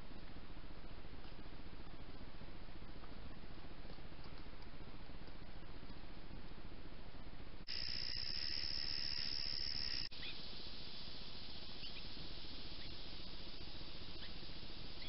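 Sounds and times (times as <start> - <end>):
background hiss: 0.0 - 15.0
night insects trilling: 7.7 - 15.0.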